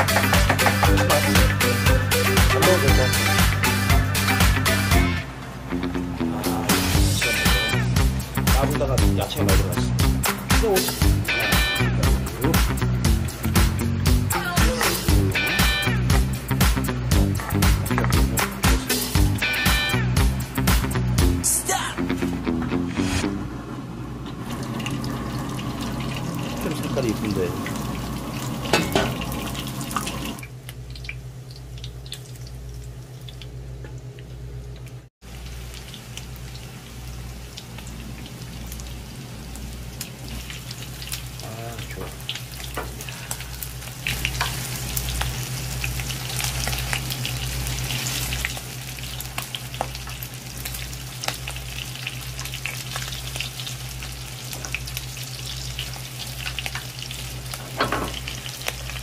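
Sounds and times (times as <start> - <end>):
pancakes sizzling in oil: 35.2 - 59.0.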